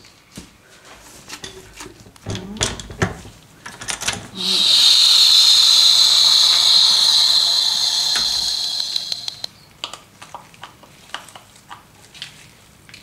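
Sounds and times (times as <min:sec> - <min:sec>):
loud steady hiss: 0:04.4 - 0:09.5.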